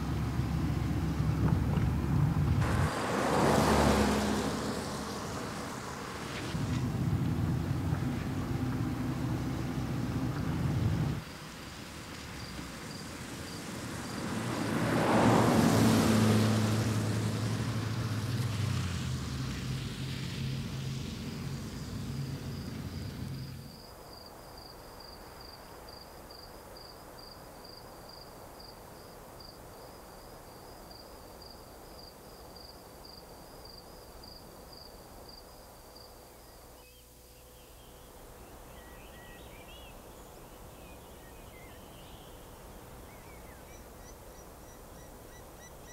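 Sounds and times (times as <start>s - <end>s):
car passing on wet road: 0.0s - 23.8s
night insects chirping: 21.3s - 45.9s
bird chirps: 36.8s - 42.5s.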